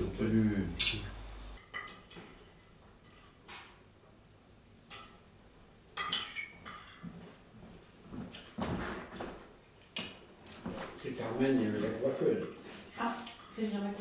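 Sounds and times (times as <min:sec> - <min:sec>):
cutlery clinking against plate: 0:00.8 - 0:03.7, 0:06.0 - 0:07.2.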